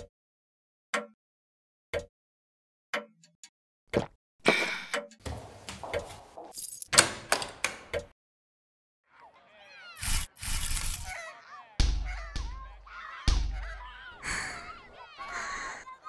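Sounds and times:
keys jangling: 0:06.5 - 0:07.1
key turning in door lock: 0:06.7 - 0:08.1.

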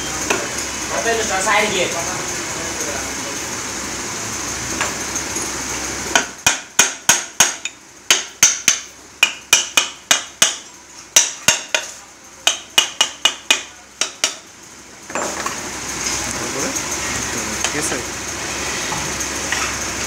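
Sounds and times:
hammer tapping metal: 0:06.1 - 0:14.5.

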